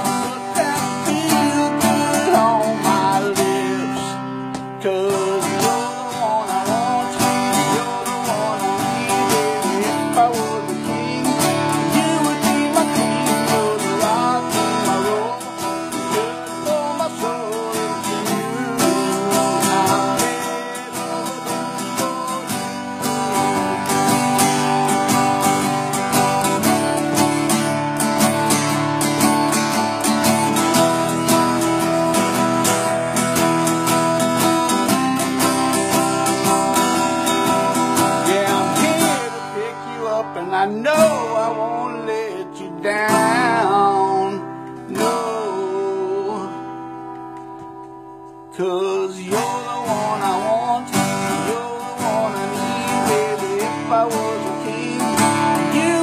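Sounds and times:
acoustic guitar strumming: 0:00.0 - 0:56.0.

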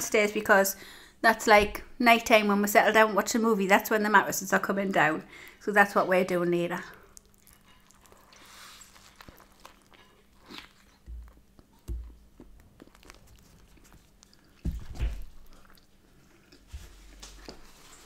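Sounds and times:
wet chewing clicks: 0:06.9 - 0:17.6
biting into soft bread: 0:07.2 - 0:17.6
dull thumps: 0:11.1 - 0:12.5, 0:14.6 - 0:15.5.

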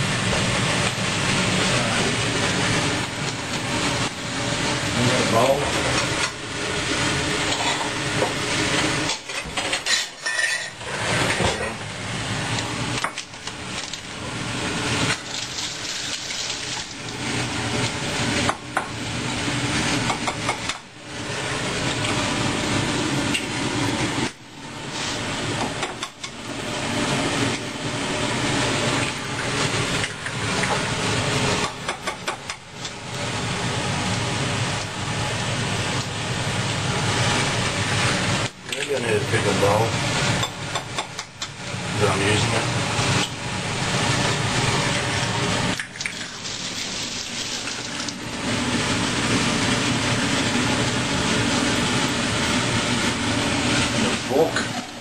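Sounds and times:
dishes and pots clattering: 0:09.1 - 0:11.6.

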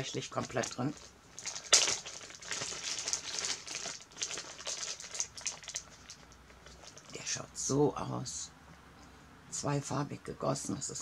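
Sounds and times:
plastic bag crinkling: 0:00.0 - 0:07.2
sharp crackle: 0:00.0 - 0:07.2.

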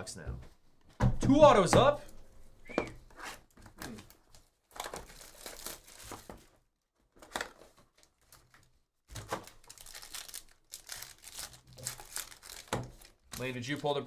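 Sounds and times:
foil packs crinkling: 0:03.9 - 0:06.5, 0:07.1 - 0:14.0.

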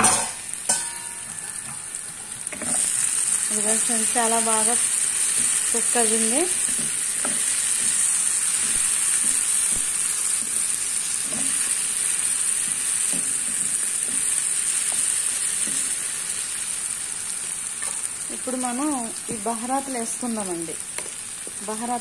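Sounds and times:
vegetables sizzling in oil: 0:00.0 - 0:22.0.

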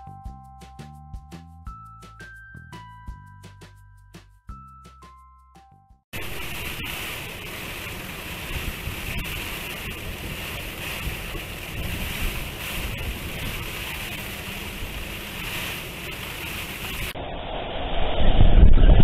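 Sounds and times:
rain: 0:06.2 - 0:17.3
wind gusting on microphone: 0:06.2 - 0:19.0.

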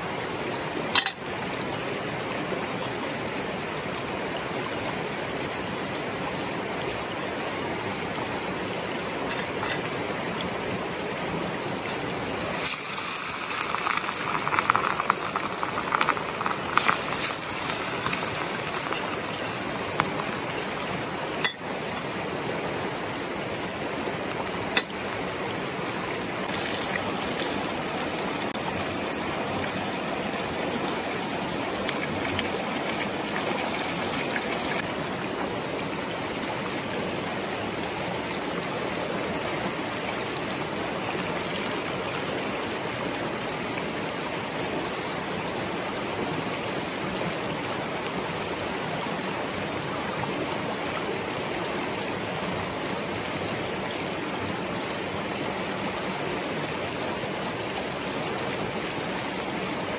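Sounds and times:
stream rushing over stones: 0:00.0 - 0:59.9
high hiss with faint clicks: 0:11.9 - 0:20.4.

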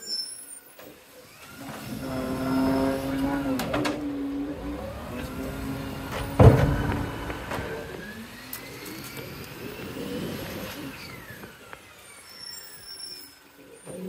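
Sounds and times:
truck engine and drivetrain whine: 0:00.9 - 0:13.9
loud bang: 0:01.8 - 0:09.3.

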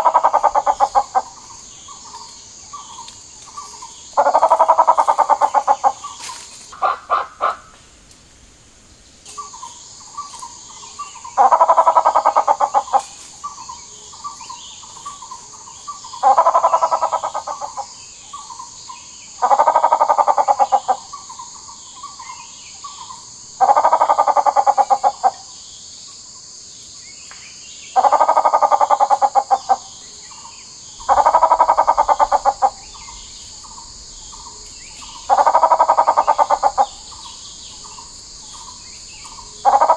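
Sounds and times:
bird clucking notes: 0:00.0 - 0:01.5, 0:04.2 - 0:07.7, 0:28.0 - 0:29.8, 0:31.0 - 0:33.0, 0:35.1 - 0:37.1, 0:39.6 - 0:39.9
bird rattling calls: 0:31.0 - 0:37.3.

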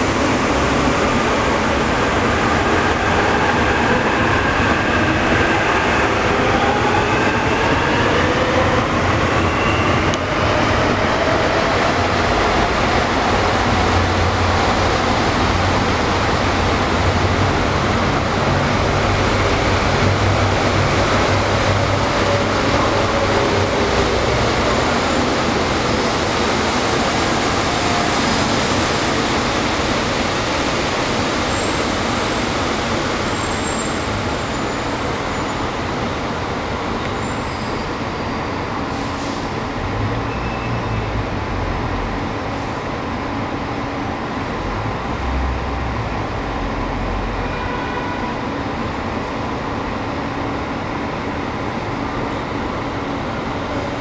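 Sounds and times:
monorail train humming: 0:00.0 - 0:54.0.

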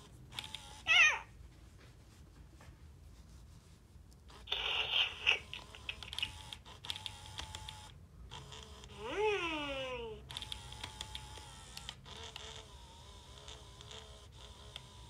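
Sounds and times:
toy motor grinding whirr: 0:00.0 - 0:01.2, 0:04.3 - 0:15.0
small toy clicks: 0:05.2 - 0:09.2, 0:10.3 - 0:15.0.

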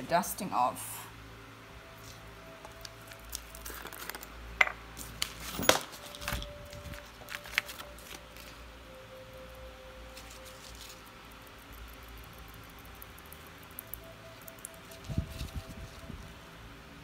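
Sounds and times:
paper rustling: 0:05.0 - 0:08.6.

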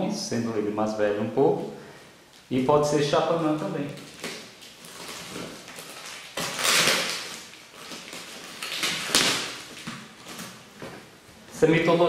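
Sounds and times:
packing tape ripping: 0:03.7 - 0:10.9.

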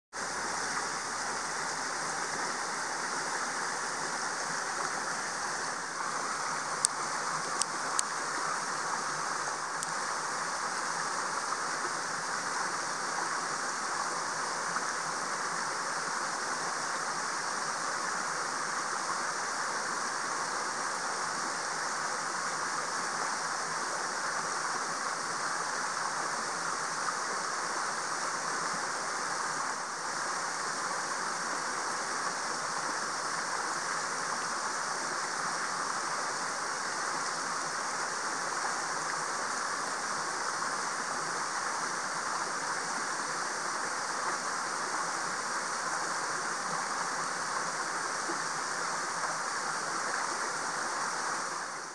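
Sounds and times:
outdoor background hiss: 0:00.1 - 0:51.9
faint clicks: 0:06.8 - 0:08.2.

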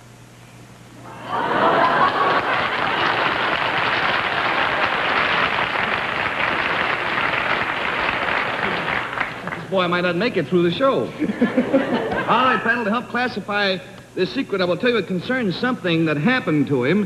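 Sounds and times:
audience applauding: 0:01.0 - 0:10.0.

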